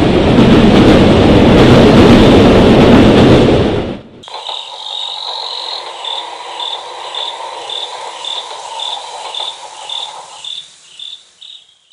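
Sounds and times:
high insect trill: 4.2 - 11.9
insects chirping: 4.2 - 11.9
low insect trill: 4.2 - 11.9.

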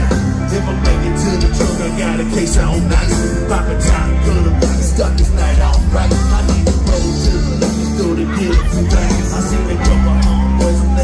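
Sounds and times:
live band playing amplified music: 0.0 - 11.0
person singing: 0.0 - 11.0.

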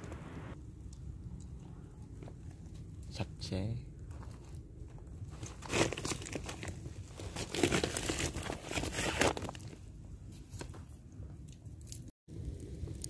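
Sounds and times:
crinkling and rustling: 4.0 - 12.1.

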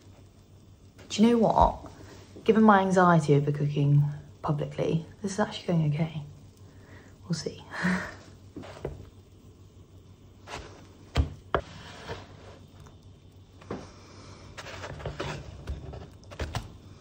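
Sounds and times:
spatula scraping frying pan: 8.6 - 9.1, 10.4 - 12.8, 14.4 - 16.5.

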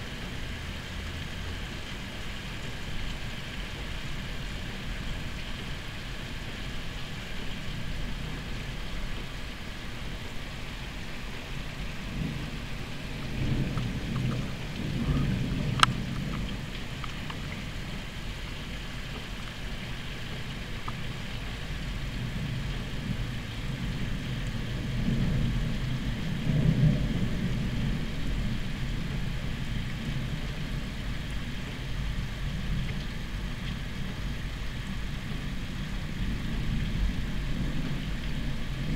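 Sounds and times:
steady rain: 0.0 - 38.9
thunder rumbling: 7.3 - 19.0, 19.6 - 38.9.

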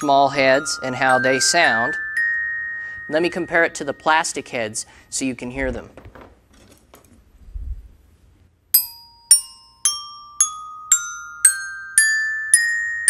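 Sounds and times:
glockenspiel notes climbing scale: 0.0 - 5.2, 8.8 - 13.0.

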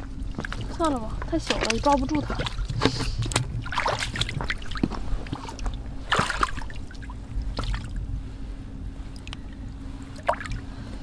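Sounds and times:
boots wading through water: 0.0 - 8.0, 10.0 - 10.6.

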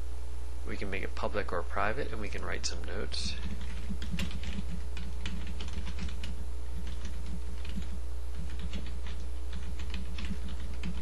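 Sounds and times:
low electrical hum: 0.0 - 11.0
keyboard typing: 3.2 - 11.0.

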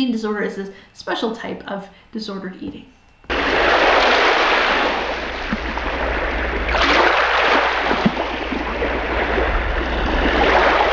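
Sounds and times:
steady low rumble: 3.2 - 10.9
waves washing onto shore: 3.3 - 10.9.

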